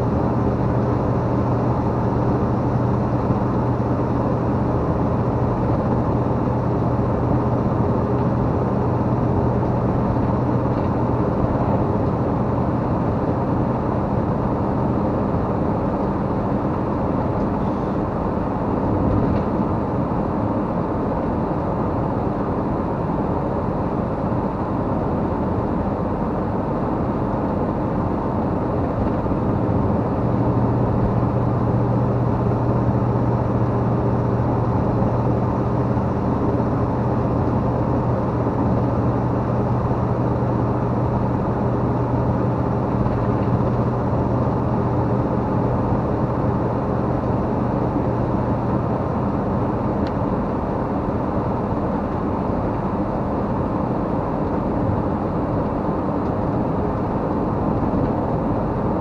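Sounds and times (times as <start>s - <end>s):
vehicle engine and tyre noise: 0.0s - 59.0s
low hum: 28.2s - 50.6s.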